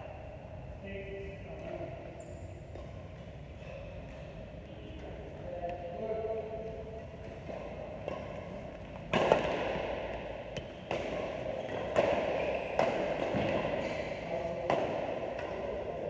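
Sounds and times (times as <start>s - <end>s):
rackets smacking a shuttlecock: 7.2s - 16.0s.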